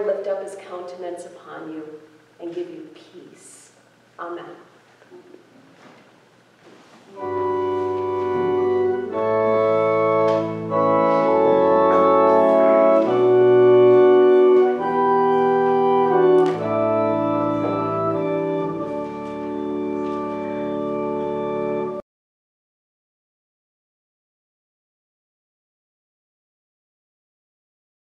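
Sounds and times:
organ playing held chords: 0:07.1 - 0:22.0.

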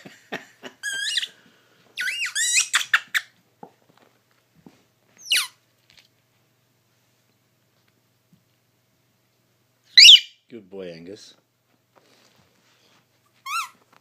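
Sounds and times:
squeaky toy squeaking: 0:02.0 - 0:03.3, 0:05.2 - 0:05.6, 0:10.0 - 0:10.3, 0:13.4 - 0:13.8.

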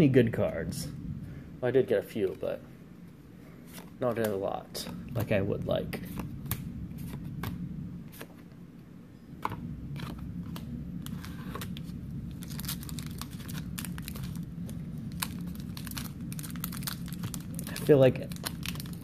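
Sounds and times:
foil pack crinkling and tearing: 0:12.3 - 0:19.0.

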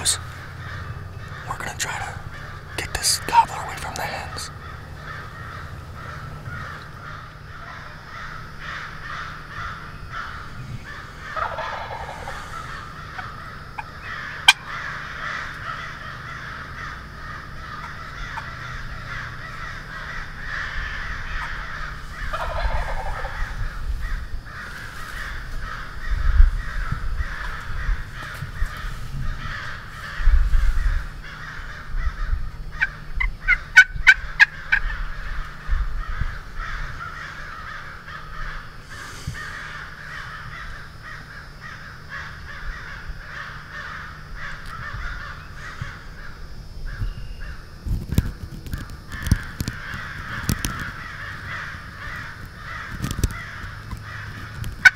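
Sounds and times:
turkey gobbling: 0:00.0 - 0:07.9, 0:09.1 - 0:15.9, 0:17.7 - 0:23.7, 0:32.7 - 0:35.0
sharp bird calls: 0:00.0 - 0:54.9
steady background noise: 0:00.0 - 0:54.9.

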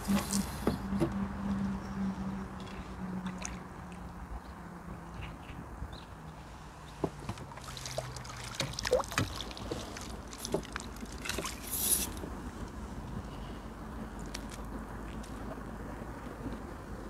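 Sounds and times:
fish splashing at water surface: 0:07.5 - 0:12.2.

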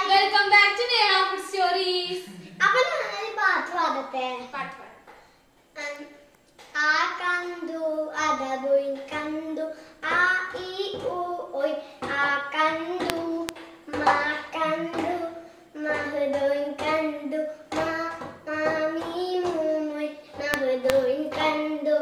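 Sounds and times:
sharp taps: 0:08.9 - 0:11.3, 0:12.0 - 0:21.8.

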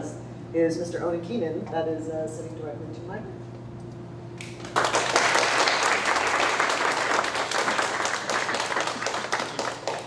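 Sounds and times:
audience applauding: 0:04.5 - 0:10.0.

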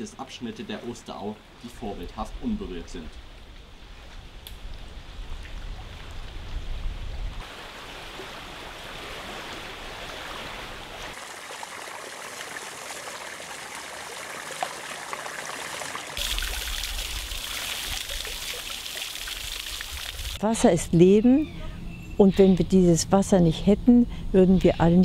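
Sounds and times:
stream trickling and splashing: 0:00.0 - 0:20.4.

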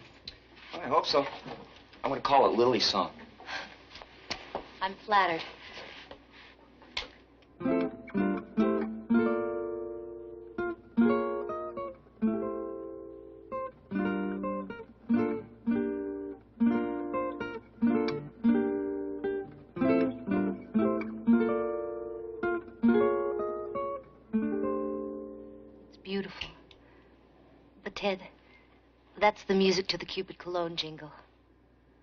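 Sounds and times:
acoustic guitar melody: 0:07.6 - 0:27.0.

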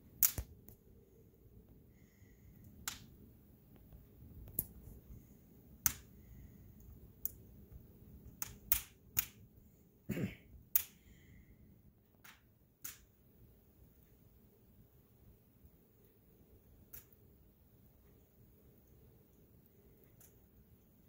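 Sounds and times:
wood fire crackling and popping: 0:00.0 - 0:00.9, 0:02.5 - 0:09.6, 0:10.6 - 0:11.2, 0:12.1 - 0:13.2, 0:16.6 - 0:21.0
low hiss of fire: 0:00.0 - 0:13.2.

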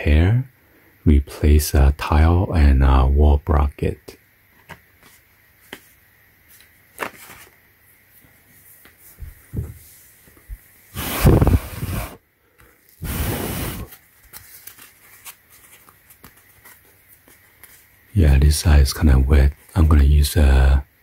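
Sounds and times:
loud rustling scrapes on carpet: 0:11.0 - 0:12.2, 0:13.0 - 0:13.9.

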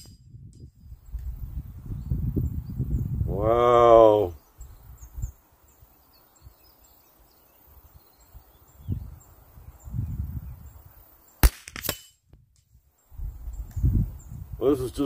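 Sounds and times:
distant bird chirps: 0:04.2 - 0:11.4
rifle shot cracks: 0:11.4 - 0:12.2.

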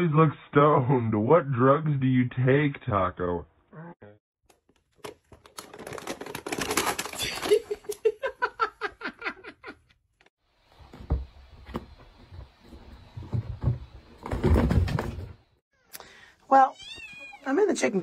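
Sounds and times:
paper bag crinkling: 0:05.0 - 0:07.8
person laughing: 0:07.2 - 0:09.9.

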